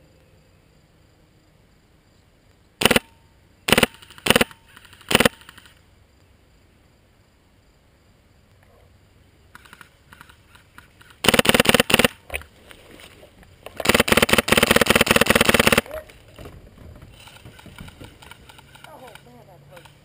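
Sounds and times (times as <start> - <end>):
airsoft gun full-auto bursts: 2.8 - 3.1, 3.7 - 5.8, 11.2 - 12.2, 13.8 - 15.9
rapid clicking: 3.7 - 5.8, 13.7 - 15.8.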